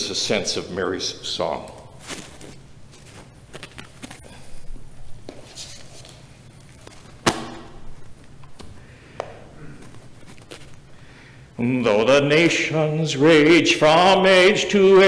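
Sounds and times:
book rustling at microphone: 1.6 - 4.4, 9.6 - 11.0.

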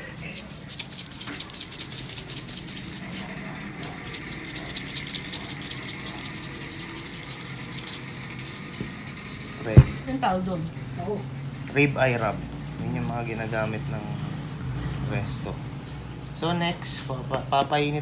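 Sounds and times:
shaker jar rattling: 0.0 - 8.7.

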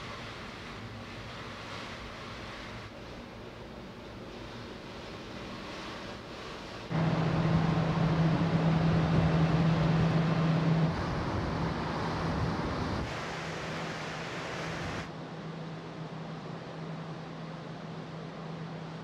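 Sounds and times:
ship engine hum: 4.8 - 19.0.

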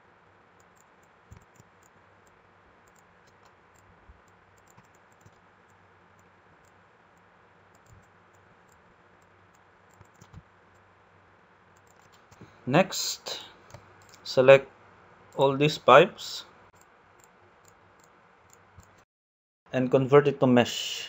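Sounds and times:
low steady hiss: 0.0 - 18.9
computer mouse and keyboard clicks: 0.6 - 6.8, 7.7 - 10.8, 11.8 - 12.5, 13.6 - 14.2.

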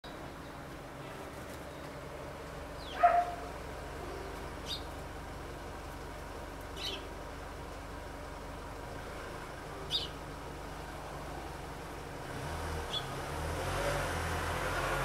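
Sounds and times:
bird chirps: 2.8 - 3.4, 4.1 - 5.0, 6.8 - 7.1, 9.9 - 10.2
dog barking: 2.9 - 3.5.

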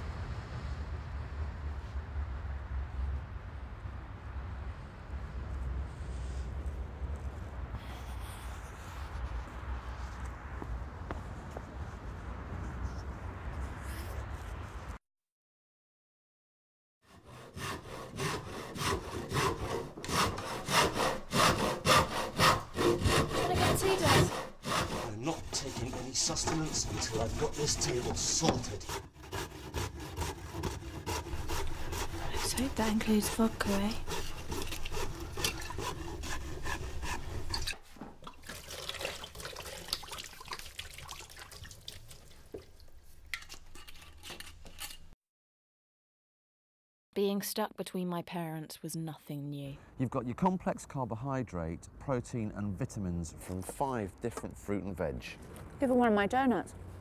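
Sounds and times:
low rumble: 0.0 - 7.7
hand saw cutting wood: 17.1 - 38.0, 43.3 - 45.2
water running in sink: 38.2 - 42.8.

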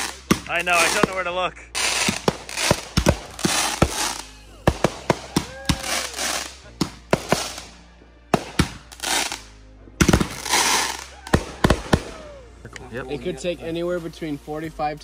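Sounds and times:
firework shells bursting: 0.0 - 7.8, 8.4 - 12.2
firework crackling: 0.0 - 12.6.

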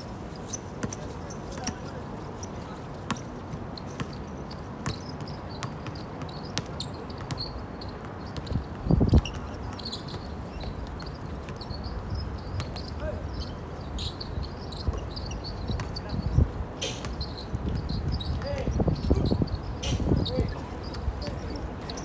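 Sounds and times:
basketballs bouncing on court: 0.8 - 2.0, 4.8 - 11.9, 15.7 - 16.1.

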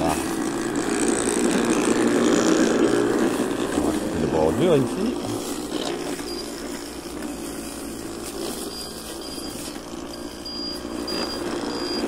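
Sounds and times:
electric lawnmower motor humming: 0.0 - 12.0.

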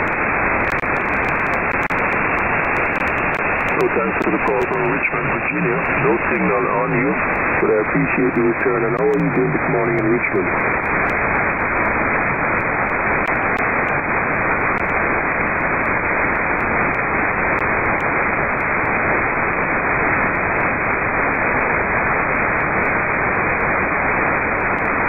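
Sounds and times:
radio static hiss: 0.0 - 25.0.

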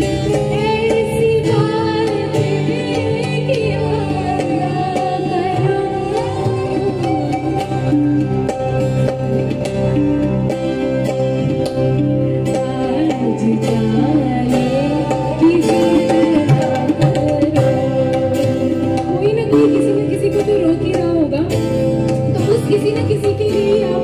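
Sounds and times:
woman singing: 0.0 - 8.5, 12.5 - 24.0
acoustic guitar: 0.0 - 24.0
tabla drumming: 0.0 - 24.0.

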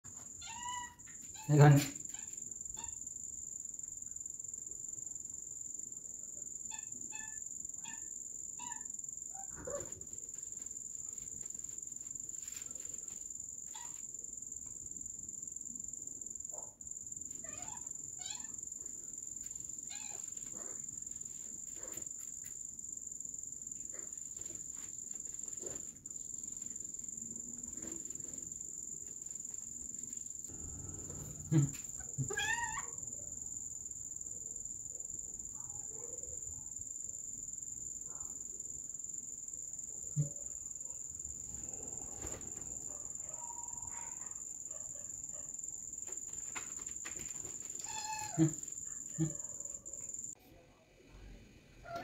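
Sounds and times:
crickets chirping: 0.1 - 50.4
kitten mewing: 30.8 - 32.9, 47.8 - 49.4.

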